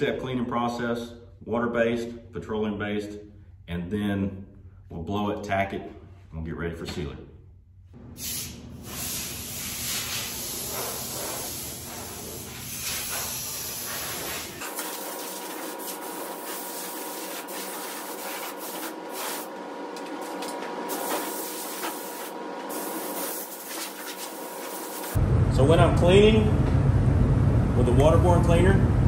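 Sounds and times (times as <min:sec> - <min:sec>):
air blow gun hissing: 0:08.2 - 0:19.5, 0:20.9 - 0:25.2
low rumble: 0:25.2 - 0:29.0.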